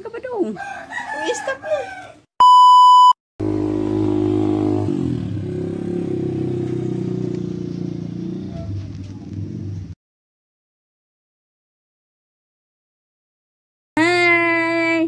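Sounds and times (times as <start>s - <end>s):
test tone beep: 2.4s - 3.2s.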